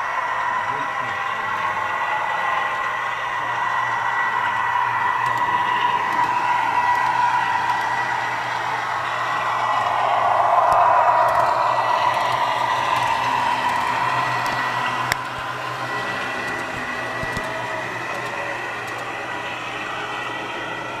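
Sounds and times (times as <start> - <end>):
model train whirring: 0.0 - 21.0.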